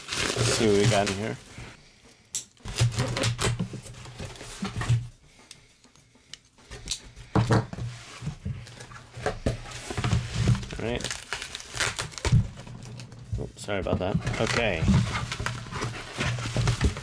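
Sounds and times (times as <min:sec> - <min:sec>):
cardboard rubbing: 0:07.8 - 0:17.0.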